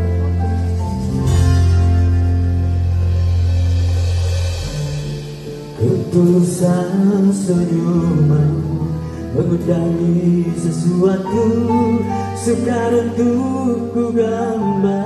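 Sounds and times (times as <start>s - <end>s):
slow ballad with guitar: 0.0s - 15.0s
man singing: 5.7s - 15.0s.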